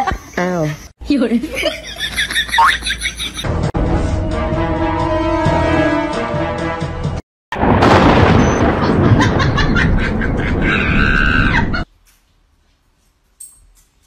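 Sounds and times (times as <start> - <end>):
rainstorm: 7.5 - 11.8
woman screaming: 10.7 - 11.8.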